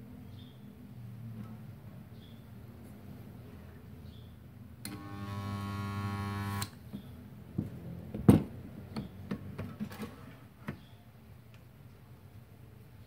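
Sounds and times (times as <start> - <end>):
welder electrical buzz: 4.9 - 6.8.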